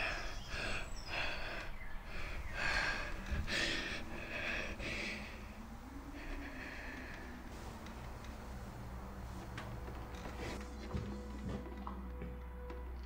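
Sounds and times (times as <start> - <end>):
person breathing heavily: 0.0 - 9.2.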